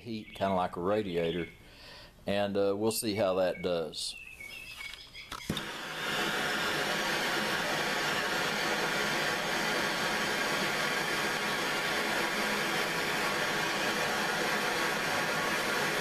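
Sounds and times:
gas torch hissing: 0:05.4 - 0:16.0.

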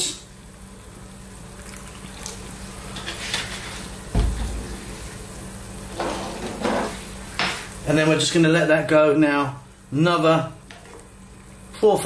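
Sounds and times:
sauce pouring into pan: 0:00.4 - 0:05.9
soup bubbling: 0:00.4 - 0:06.0
low thump: 0:04.1 - 0:04.9.

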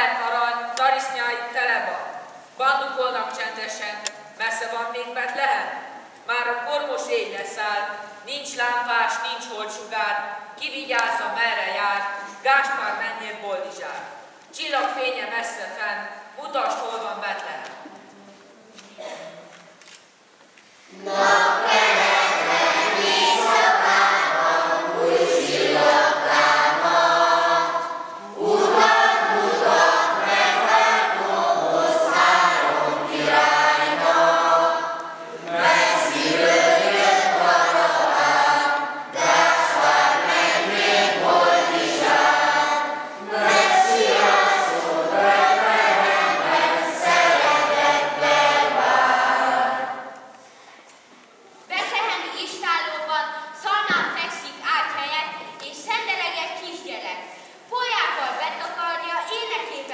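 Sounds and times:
children singing together: 0:20.9 - 0:50.3.

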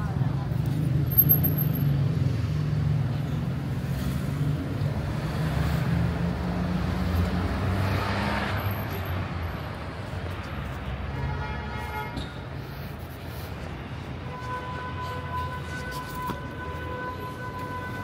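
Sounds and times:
car passing: 0:03.8 - 0:11.0.

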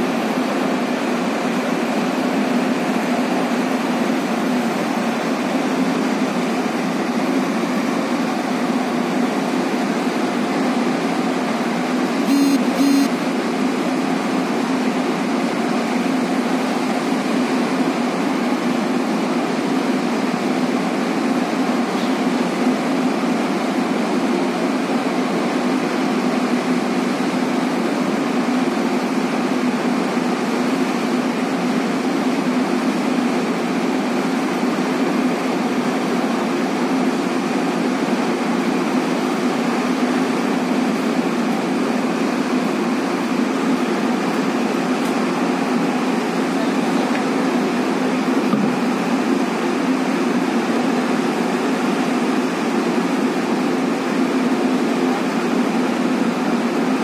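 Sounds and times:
machinery drone with low hum: 0:00.0 - 0:57.0.

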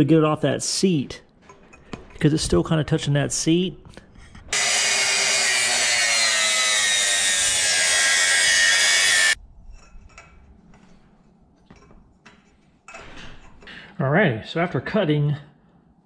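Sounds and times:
chop saw grinding metal: 0:04.5 - 0:09.4.

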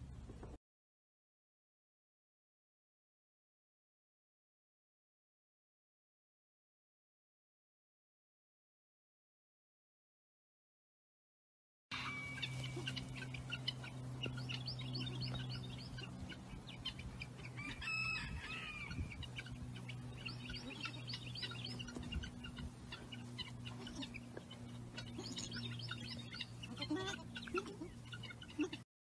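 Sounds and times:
low steady hum: 0:11.9 - 0:28.8
small birds chirping: 0:12.3 - 0:28.8
rooster crowing: 0:17.3 - 0:19.2.

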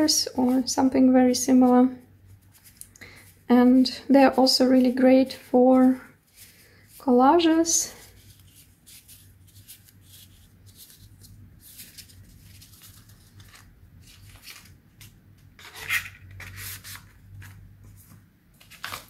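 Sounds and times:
paper rustle: 0:02.3 - 0:03.4, 0:05.8 - 0:19.0
card sheets scraping: 0:08.0 - 0:19.0.

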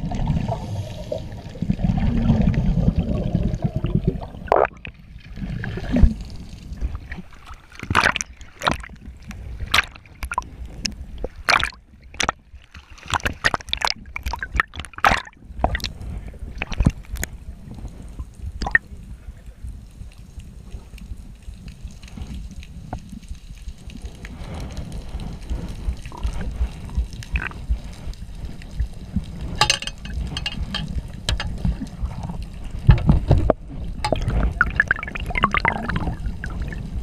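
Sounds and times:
muffled underwater bubbling: 0:00.0 - 0:12.4, 0:18.6 - 0:18.9, 0:24.3 - 0:37.0
water splashing and sloshing: 0:00.0 - 0:18.9, 0:20.8 - 0:37.0.

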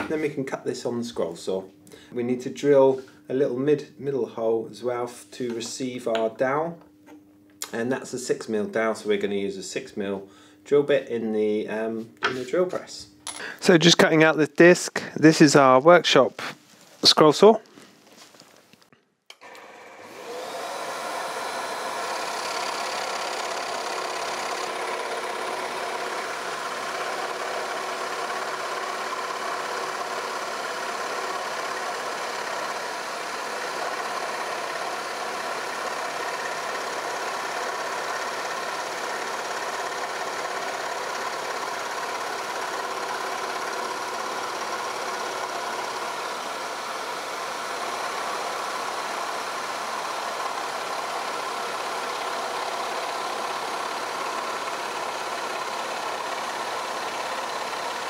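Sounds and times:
scroll saw cutting plywood: 0:19.3 - 0:58.0.

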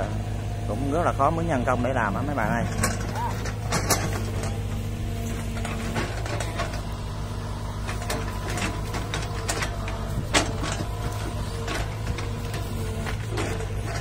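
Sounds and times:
diesel engine running: 0:00.0 - 0:14.0
metallic clanks and knocks: 0:02.6 - 0:07.2, 0:07.8 - 0:14.0.

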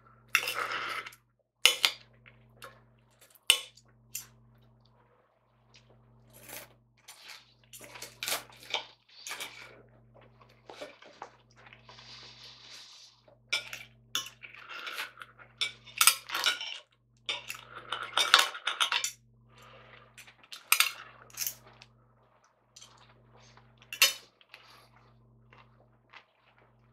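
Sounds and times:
knife and fork scraping a plate: 0:00.4 - 0:01.9, 0:06.3 - 0:09.7, 0:13.6 - 0:19.1.

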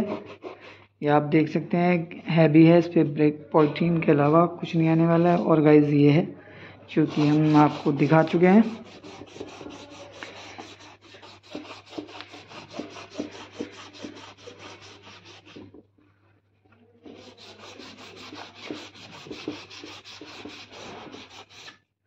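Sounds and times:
sandpaper rubbing on a bumper: 0:07.1 - 0:15.7, 0:17.1 - 0:21.7.

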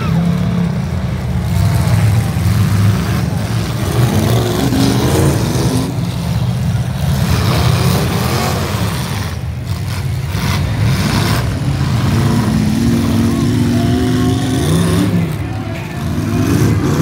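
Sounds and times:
car engines revving loudly: 0:00.0 - 0:17.0.

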